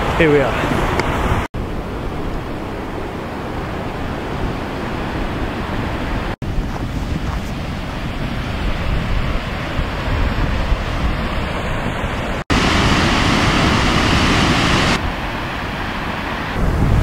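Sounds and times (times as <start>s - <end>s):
wind on microphone: 0.0s - 17.0s
waterfall rushing: 11.3s - 17.0s.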